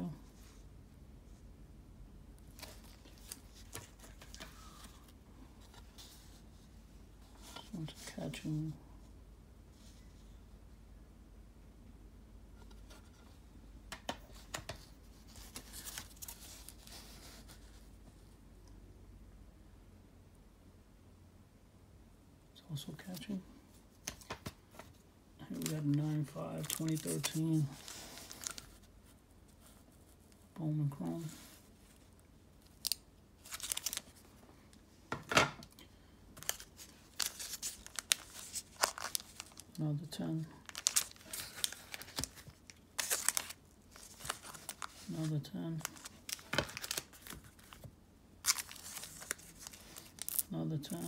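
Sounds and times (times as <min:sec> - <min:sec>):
plastic sleeve rustling: 0:02.5 - 0:06.4, 0:24.1 - 0:28.9, 0:31.0 - 0:34.4, 0:36.4 - 0:39.8, 0:40.6 - 0:51.0.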